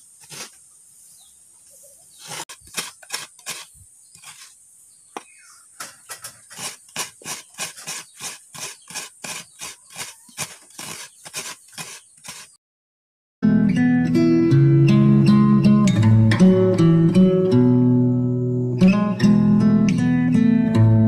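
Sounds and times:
coconut shell rasping on grater: 6.5s - 12.6s.

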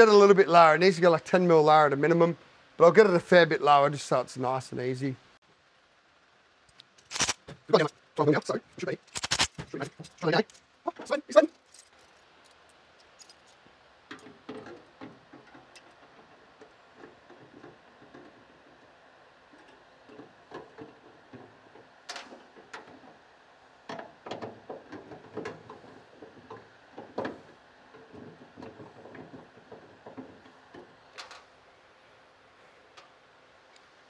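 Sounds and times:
hand tools clicking and knocking: 13.0s - 18.9s, 23.9s - 31.5s.

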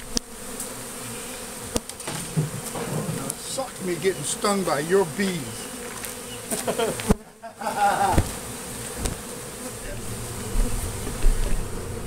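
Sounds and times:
bees buzzing around a hive: 0.0s - 12.0s
low thumps: 9.0s - 12.0s.

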